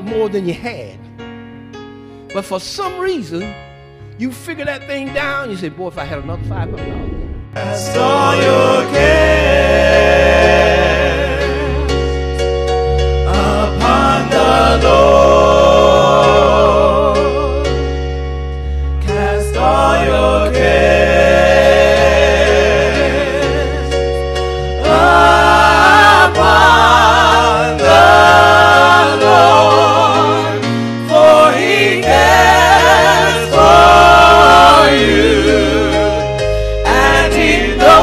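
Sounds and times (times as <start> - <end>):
held low notes: 4.7 - 8.2
gospel voices singing: 6.0 - 38.0.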